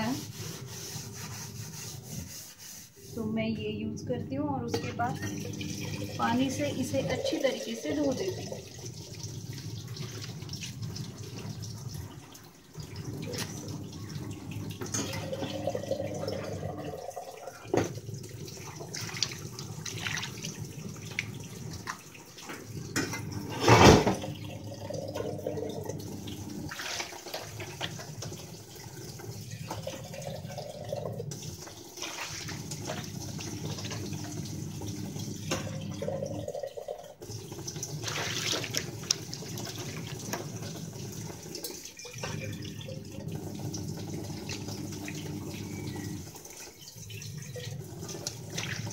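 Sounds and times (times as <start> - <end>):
running water: 0.0 - 48.9
water splashing on stone counter: 37.6 - 40.8.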